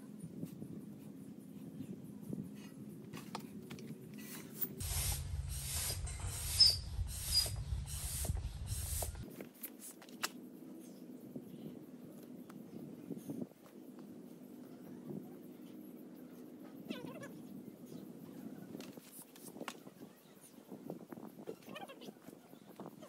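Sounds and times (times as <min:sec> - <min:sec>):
hand air pump hissing: 0:04.8 - 0:09.2.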